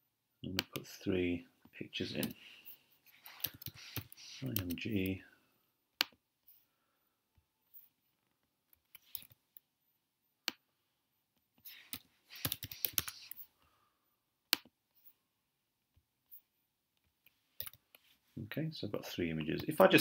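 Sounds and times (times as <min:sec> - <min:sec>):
typing on computer keyboard: 0:03.3 - 0:04.8, 0:11.9 - 0:13.3.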